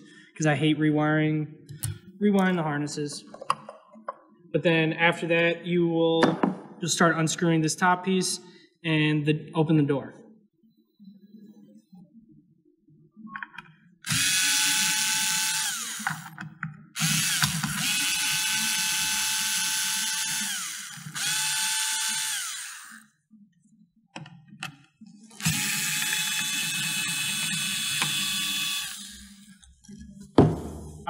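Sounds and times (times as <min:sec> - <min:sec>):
electric screwdriver motor whine: 0:14.1 - 0:16.4, 0:17.0 - 0:23.1, 0:25.4 - 0:29.5.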